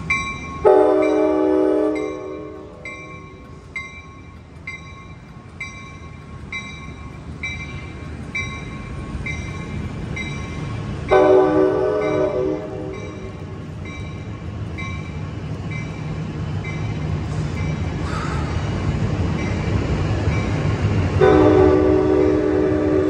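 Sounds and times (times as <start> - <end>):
train rumbling: 0.0 - 23.0
train horn blast: 0.6 - 2.8, 11.1 - 13.2, 21.2 - 23.0.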